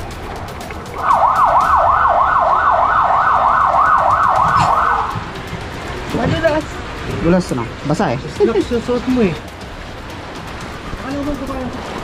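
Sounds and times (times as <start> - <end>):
electronic siren yelping: 1.0 - 5.3.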